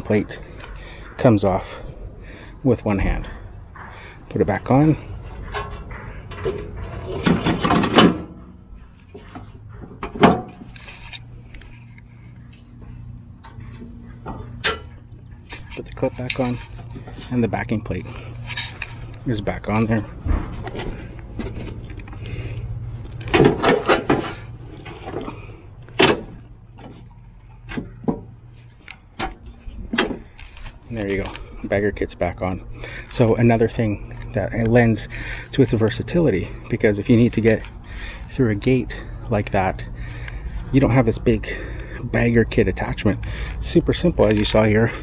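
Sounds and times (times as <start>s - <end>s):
sheet metal clanking and rattling: 4.9s - 11.1s, 23.2s - 26.4s.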